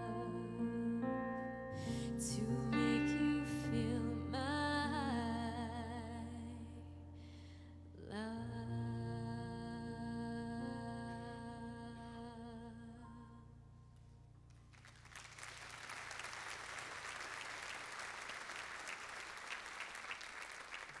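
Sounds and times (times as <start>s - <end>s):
audience applause: 14.8s - 21.0s.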